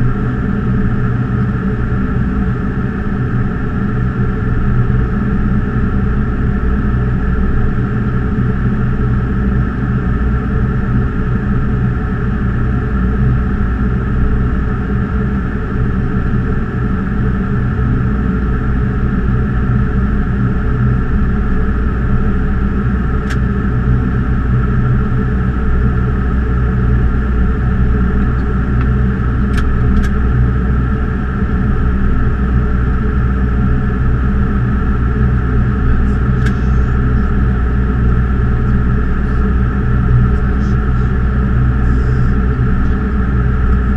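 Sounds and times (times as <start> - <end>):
cockpit air rush and hum: 10.1 - 43.9.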